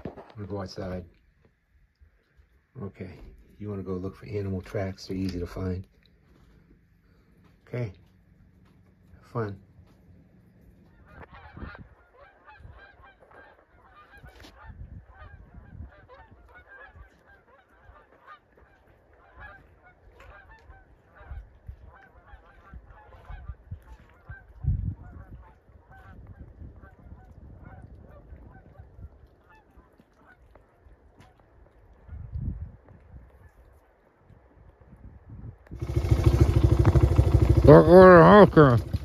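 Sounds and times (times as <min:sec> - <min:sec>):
geese honking: 0:10.8 - 0:26.2.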